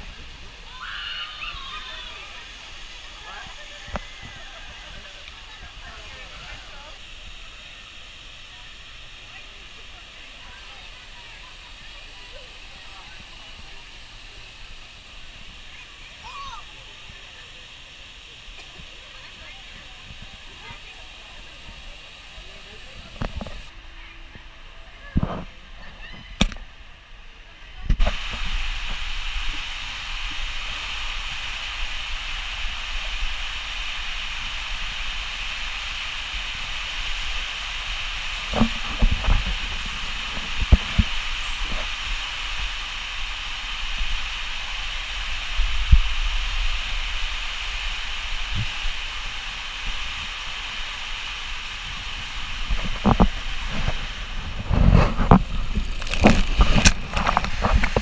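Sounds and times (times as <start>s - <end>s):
loud water splashes: 0.0s - 21.0s
water rushing through slide tube: 0.0s - 58.0s.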